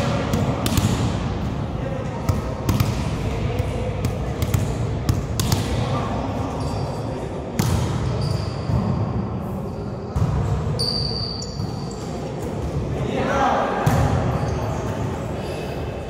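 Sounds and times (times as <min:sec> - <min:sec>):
hands slapping volleyball: 0:00.3 - 0:01.0
sneaker squeaks on court: 0:06.5 - 0:09.0, 0:09.7 - 0:12.3.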